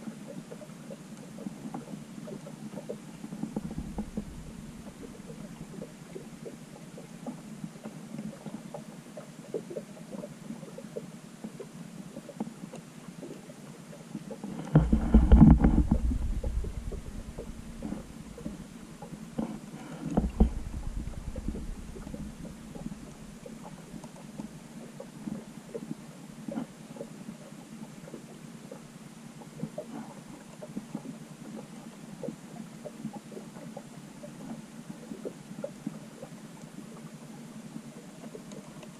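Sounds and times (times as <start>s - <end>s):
low underwater hum: 0.0s - 38.9s
rumbling surge of water: 3.2s - 6.8s, 14.7s - 24.1s.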